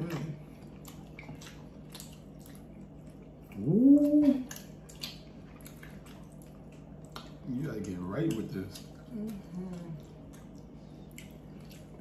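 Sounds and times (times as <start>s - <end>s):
chewing and lip-smacking: 0.0s - 12.0s
person humming mmm: 3.5s - 4.6s.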